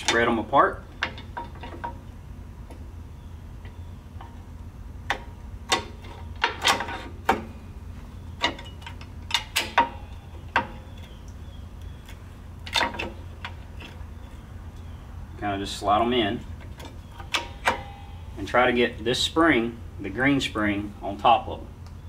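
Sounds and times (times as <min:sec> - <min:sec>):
steady low hum: 0:00.0 - 0:22.0
metal brake parts clinking: 0:16.7 - 0:18.3.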